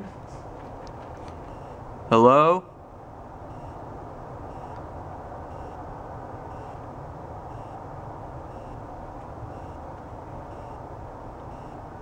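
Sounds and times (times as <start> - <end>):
steady background noise: 0.0 - 12.0
short high electronic beeps: 3.5 - 3.8, 4.5 - 4.8, 5.5 - 5.8, 6.5 - 6.8, 7.5 - 7.8, 8.5 - 8.8.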